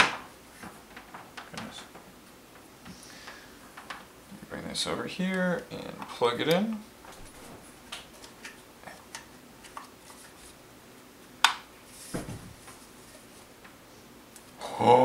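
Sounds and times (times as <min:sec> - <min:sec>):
soft thump: 0:12.1 - 0:12.6.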